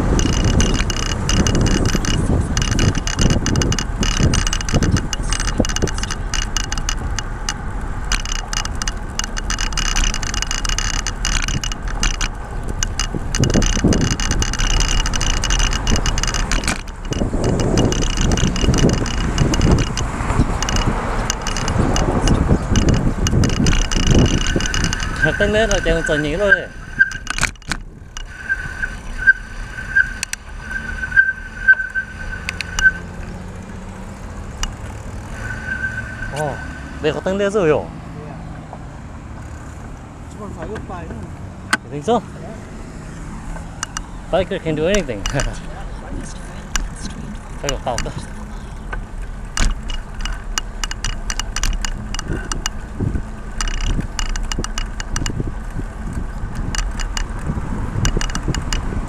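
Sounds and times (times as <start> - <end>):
bicycle clicks and rattles: 0.0 - 30.5, 31.7 - 36.4, 39.4 - 40.8, 43.5 - 59.0
low rumble: 0.0 - 40.5
bicycle high squeal: 22.6 - 27.4, 28.2 - 33.2, 34.9 - 37.4.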